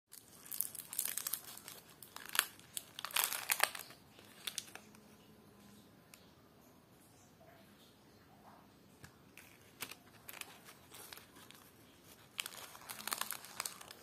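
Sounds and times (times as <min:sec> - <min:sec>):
foil candy wrapper crinkling: 0:00.1 - 0:05.0, 0:09.4 - 0:14.0.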